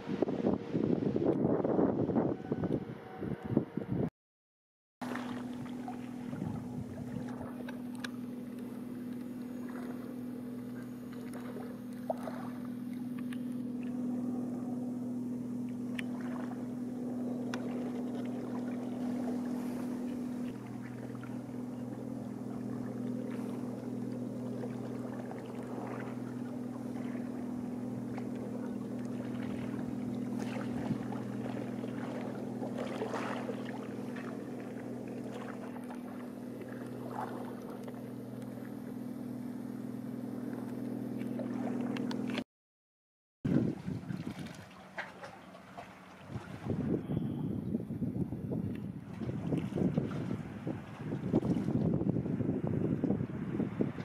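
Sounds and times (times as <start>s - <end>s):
boat engine humming: 0.0s - 4.1s, 5.0s - 42.5s, 43.5s - 54.0s
water splashing: 5.0s - 39.5s, 40.4s - 42.4s, 43.5s - 47.0s, 48.9s - 52.0s.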